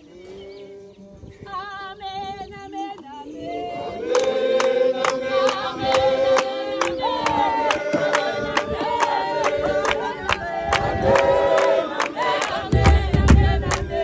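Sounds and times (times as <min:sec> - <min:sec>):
choir singing: 0:00.0 - 0:14.0
drums beating: 0:12.7 - 0:13.8.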